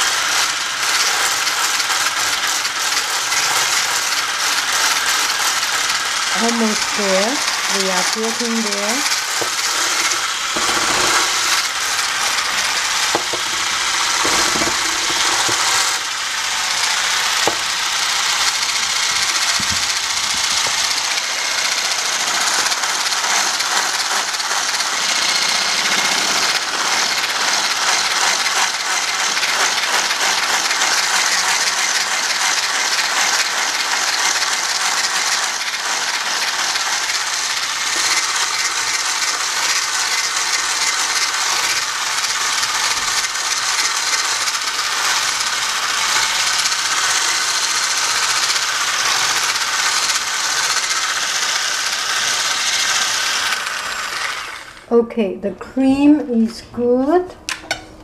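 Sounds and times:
hand mixer whirring: 0:00.0 - 0:54.9
beaters rattling against beaker: 0:04.7 - 0:16.0.

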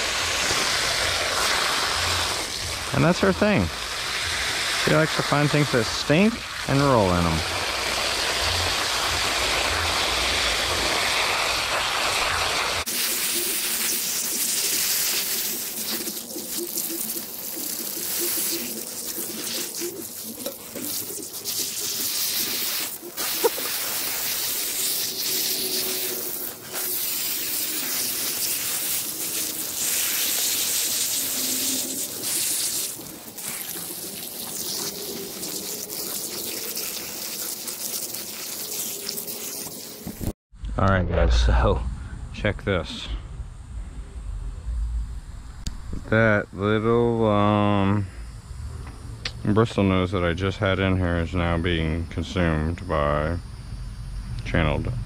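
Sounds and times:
water running and splashing: 0:00.0 - 0:40.4.

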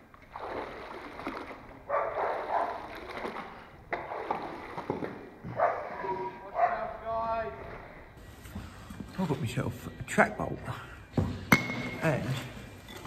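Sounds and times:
water splashing and streaming: 0:00.0 - 0:08.2.

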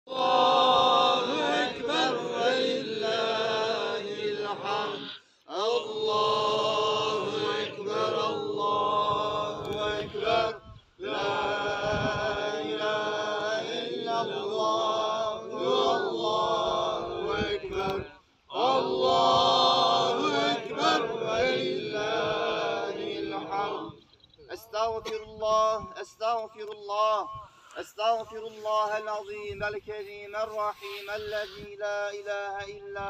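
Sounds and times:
man chanting prayer: 0:24.5 - 0:33.0.

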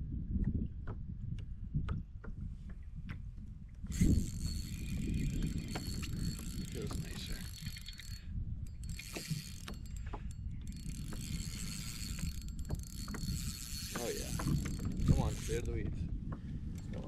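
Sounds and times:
fishing reel whirring and clicking: 0:03.8 - 0:15.9, 0:16.7 - 0:17.0.

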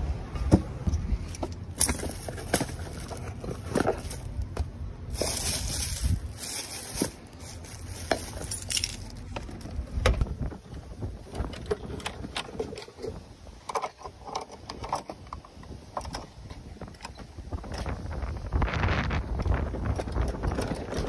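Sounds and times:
tools clicking and knocking: 0:11.3 - 0:17.3.

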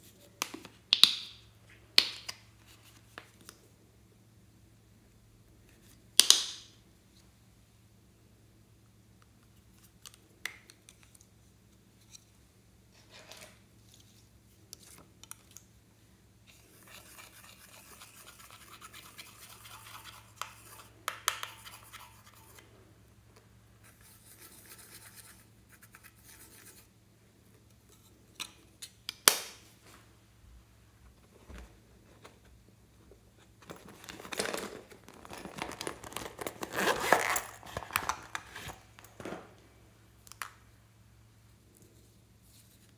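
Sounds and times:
tool scratching eyeshadow: 0:16.8 - 0:22.6
zipper opening: 0:34.4 - 0:37.9.

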